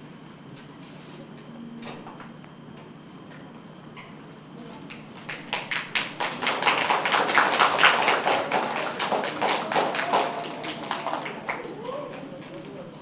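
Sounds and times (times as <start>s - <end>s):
group hand clapping: 4.8s - 12.9s.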